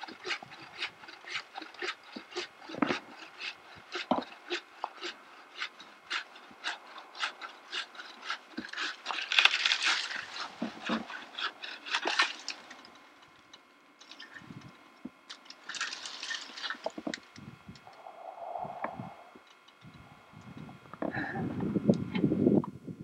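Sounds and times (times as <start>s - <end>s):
hand saw rasping: 0.0s - 12.7s
branches and leaves crackling: 0.0s - 18.1s.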